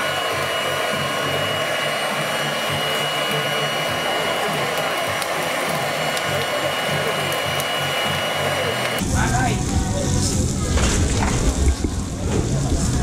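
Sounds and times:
blower air rushing hiss: 0:00.0 - 0:13.0
high whine: 0:00.0 - 0:13.0
charcoal crackling: 0:04.2 - 0:08.0.

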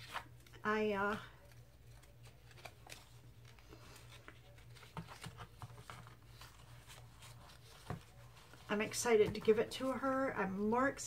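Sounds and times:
paper rustling and tapping: 0:00.0 - 0:09.6.

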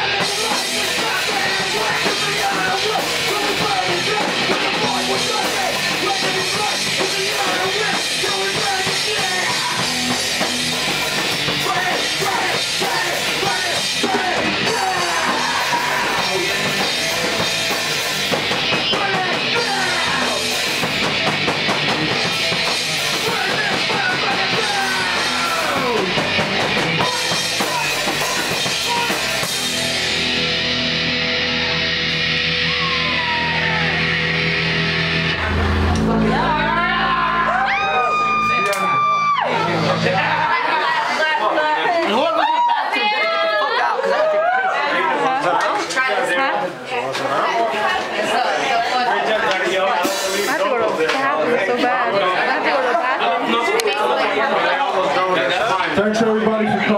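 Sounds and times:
drum kit and cymbals pounding: 0:00.0 - 0:41.2, 0:49.9 - 0:50.7
live rock band: 0:00.0 - 0:41.4, 0:49.9 - 0:54.2.

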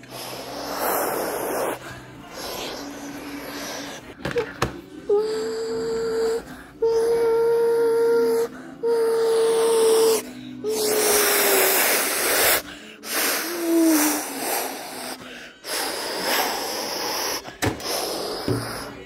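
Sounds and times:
breathy whooshing hisses: 0:00.0 - 0:04.2, 0:08.4 - 0:19.0
child making airplane noises: 0:05.2 - 0:12.5.

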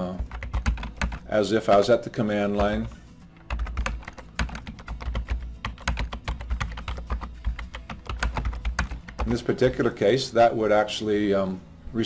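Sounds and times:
computer keyboard typing: 0:00.0 - 0:01.3, 0:02.6 - 0:09.5.

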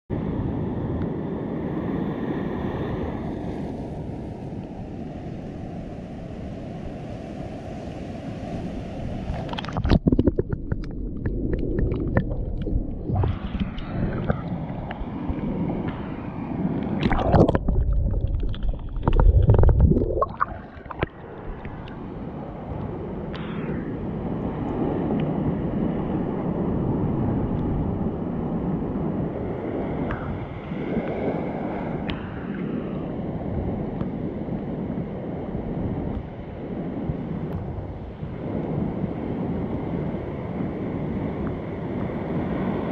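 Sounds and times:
water sloshing and gurgling: 0:09.1 - 0:28.0
loud underwater gurgling bursts: 0:09.6 - 0:14.6, 0:17.0 - 0:21.8.

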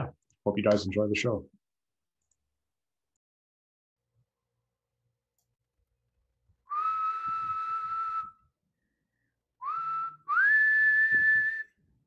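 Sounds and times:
person whistling sliding notes: 0:06.7 - 0:08.5, 0:09.6 - 0:11.8.

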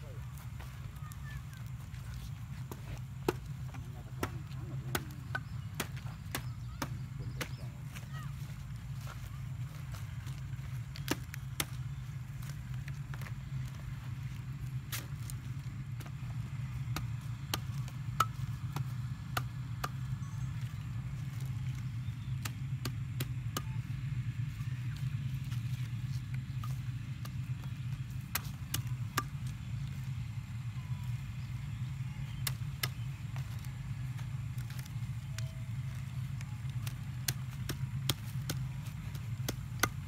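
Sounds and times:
low hum: 0:00.0 - 0:40.0
knife chopping leaves: 0:35.9 - 0:40.0.

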